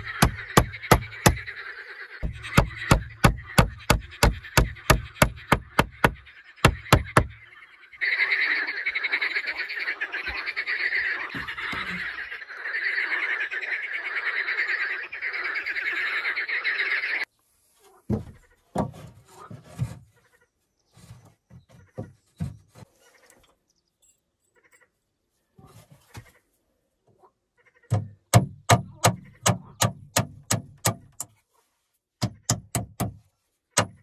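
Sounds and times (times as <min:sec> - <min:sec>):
frogs calling in chorus: 0:00.0 - 0:17.3
wooden knocks and scuffs: 0:18.0 - 0:20.1, 0:20.9 - 0:23.0.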